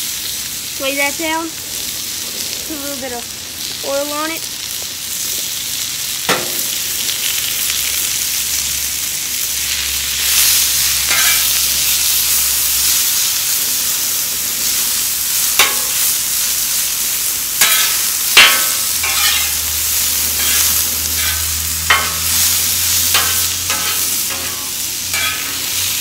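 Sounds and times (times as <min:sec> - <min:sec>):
meat sizzling on griddle: 0:00.0 - 0:26.0
metal spatula clanking on griddle: 0:06.2 - 0:06.9, 0:10.4 - 0:11.7, 0:15.5 - 0:16.2, 0:17.6 - 0:26.0.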